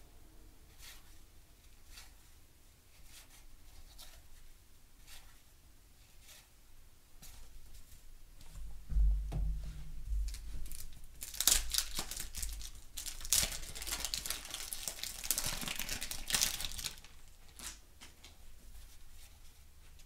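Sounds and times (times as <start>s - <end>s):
wrapper crinkling and crackling: 10.3s - 18.3s.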